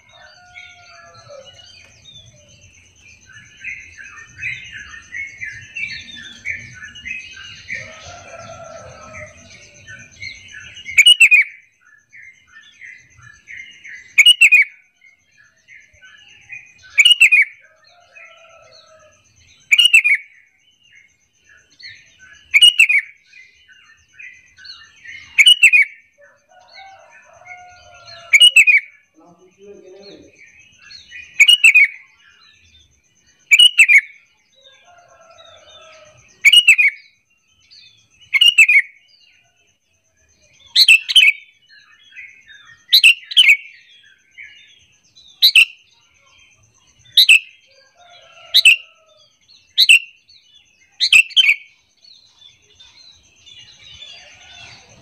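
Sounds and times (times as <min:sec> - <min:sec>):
bird chattering: 0:14.1 - 0:14.7, 0:25.2 - 0:25.9, 0:27.4 - 0:30.4, 0:31.2 - 0:32.0, 0:33.5 - 0:34.1.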